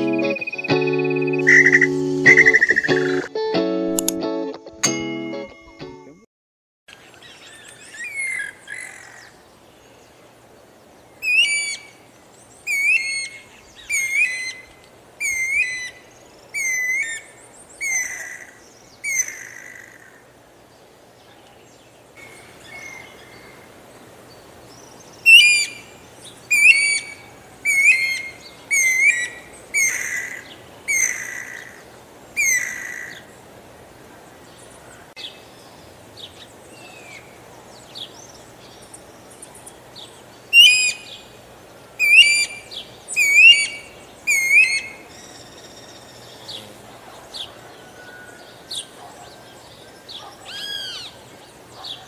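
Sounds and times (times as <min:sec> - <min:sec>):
cuckoo whistled calls: 0:00.0 - 0:03.3, 0:11.2 - 0:12.0, 0:12.7 - 0:16.0, 0:16.6 - 0:19.7, 0:25.2 - 0:31.7, 0:40.5 - 0:41.3, 0:42.0 - 0:46.7.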